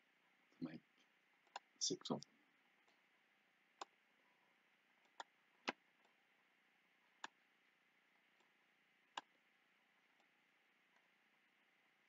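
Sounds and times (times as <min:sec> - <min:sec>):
computer mouse clicks: 0:01.4 - 0:01.7, 0:03.8 - 0:04.0, 0:05.0 - 0:06.2, 0:07.2 - 0:07.4, 0:08.3 - 0:09.4.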